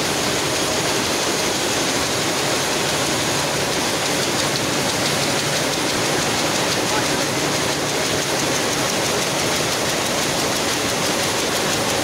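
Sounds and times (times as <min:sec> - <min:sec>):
looms running: 0:00.1 - 0:12.0.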